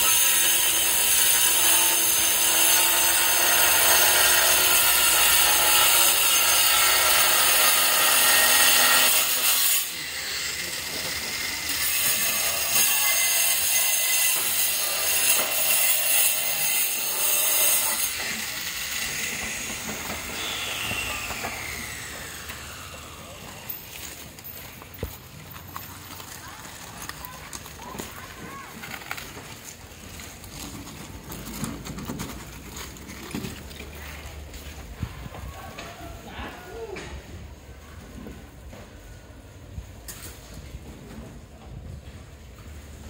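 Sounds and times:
angle grinder cutting tiles: 0.0s - 23.8s.

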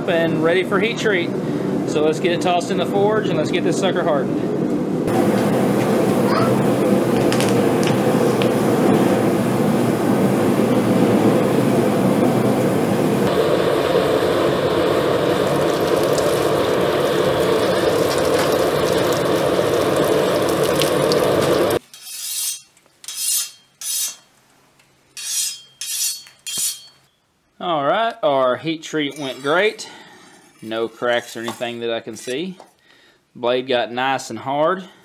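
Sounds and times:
hot steel sizzling in water: 13.2s - 24.3s
short rasping strokes: 25.2s - 27.0s.

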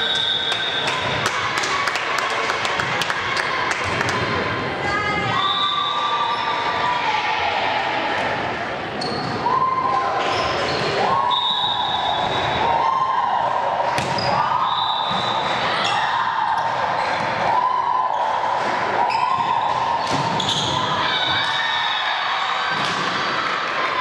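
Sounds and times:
shoe squeaks: 9.0s - 9.4s, 20.4s - 20.9s
volleyball struck and bouncing: 13.9s - 14.4s.

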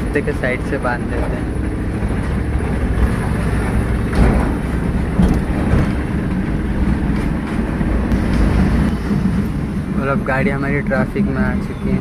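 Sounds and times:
truck engine and road rumble: 0.0s - 12.0s
truck body knocks and rattles: 1.9s - 9.5s.

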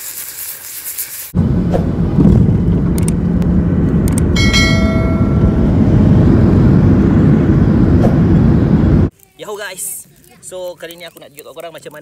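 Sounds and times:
jet cabin rumble: 1.4s - 9.1s
sharp clicks: 2.9s - 4.3s
bell-like chime: 4.4s - 5.8s.

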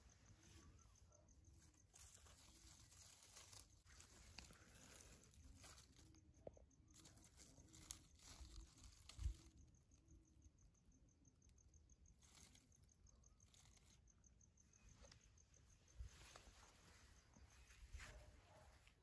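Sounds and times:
light handling rustle: 0.3s - 9.7s, 14.7s - 19.0s.

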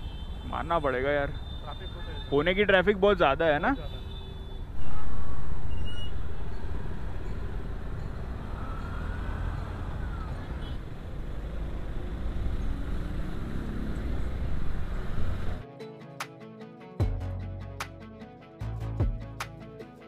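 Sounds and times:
city traffic: 0.0s - 15.6s
plucked music: 15.6s - 20.0s.

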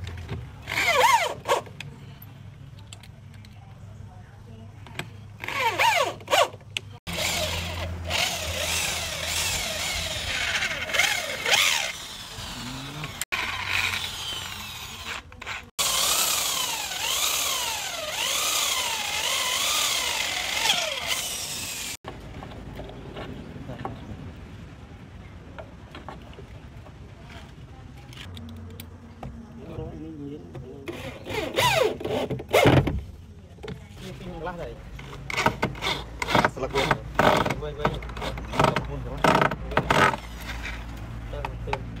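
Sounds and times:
electric drill boring into wood: 7.1s - 22.0s.

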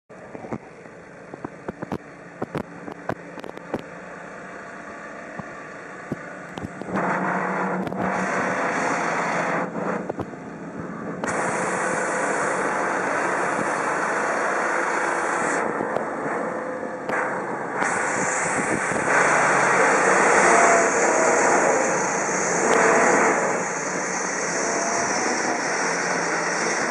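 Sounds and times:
diesel engine idling and revving: 0.1s - 26.9s
hiss: 6.6s - 10.3s, 11.2s - 26.9s.

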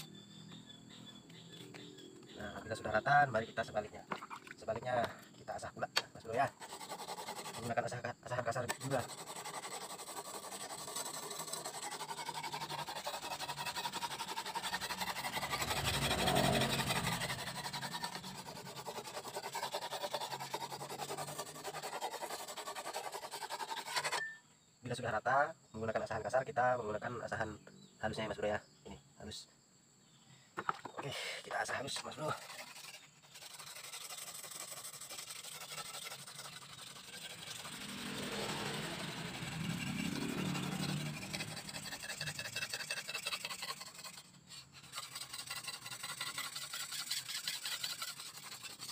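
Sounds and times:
whetstone scraping steel blade: 8.6s - 24.4s, 31.9s - 48.9s
vehicle engine: 11.1s - 18.9s, 36.5s - 43.2s.

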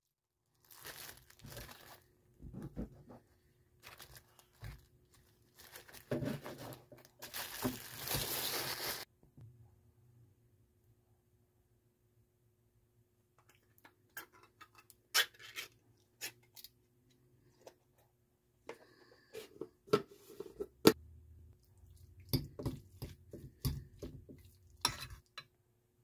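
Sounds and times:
spoon scraping ceramic bowl: 24.8s - 25.4s.

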